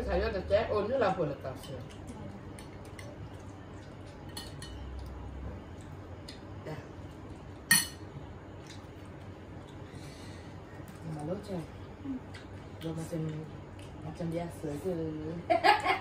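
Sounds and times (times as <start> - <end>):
cutlery clinking on plates: 7.7 - 8.0.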